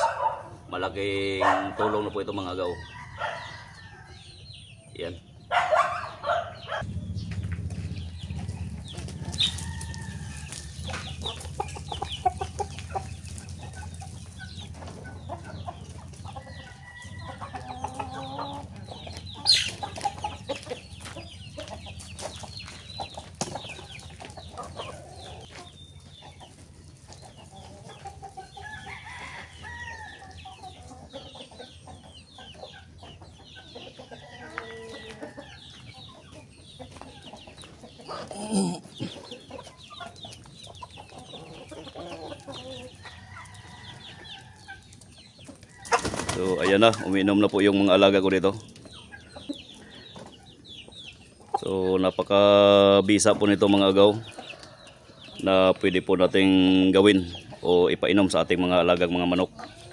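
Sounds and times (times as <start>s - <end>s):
chickens clucking and calling: 0.0s - 59.9s
low hum: 6.8s - 10.4s.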